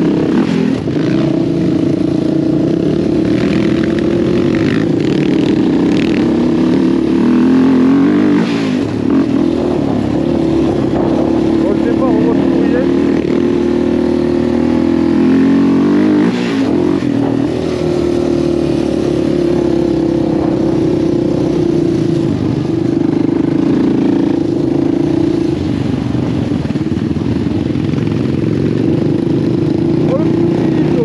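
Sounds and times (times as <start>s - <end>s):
quad bike engine running: 0.0s - 31.0s.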